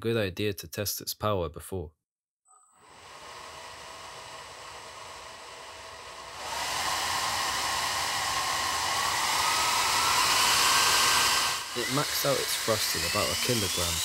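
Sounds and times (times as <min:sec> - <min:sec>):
ducted fan whine: 0:02.9 - 0:14.0.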